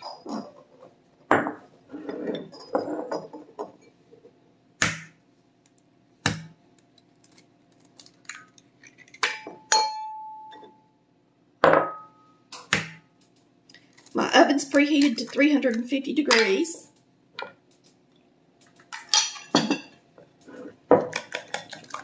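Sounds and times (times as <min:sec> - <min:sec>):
glass clinking with ringing tone: 0:09.4 - 0:10.9, 0:11.6 - 0:12.4.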